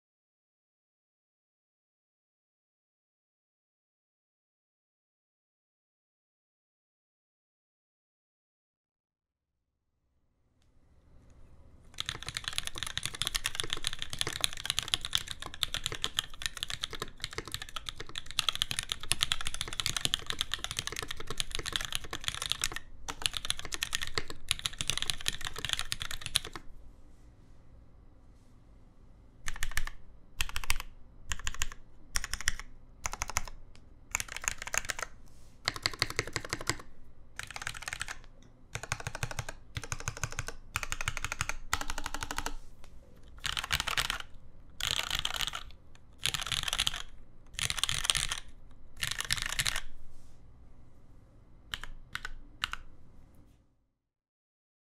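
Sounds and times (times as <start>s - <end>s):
mechanical keyboard typing: 12.0s - 26.7s, 29.4s - 42.6s, 43.4s - 49.9s, 51.7s - 52.9s.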